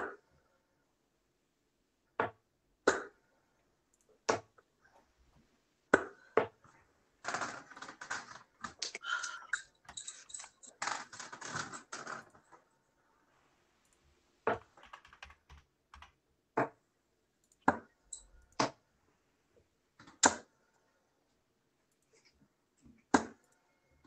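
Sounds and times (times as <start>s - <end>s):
rapid keyboard typing: 7.2s - 12.5s, 14.5s - 16.2s.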